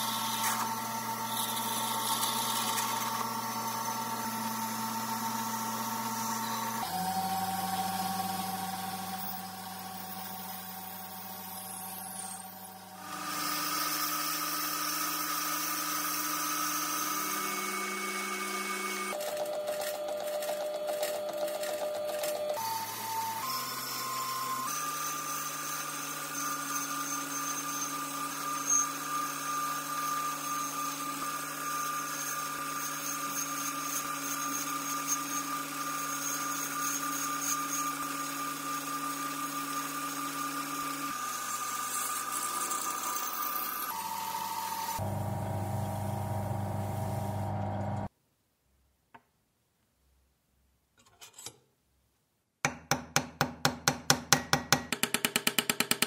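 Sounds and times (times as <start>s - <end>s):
metal lathe cutting brass: 20.3s - 48.1s
louder low machine noise: 45.0s - 48.1s
machine hum: 45.0s - 48.1s.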